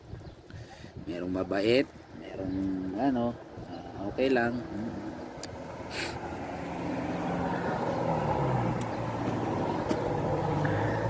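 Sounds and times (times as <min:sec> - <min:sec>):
vehicle engine running: 0:06.2 - 0:11.0.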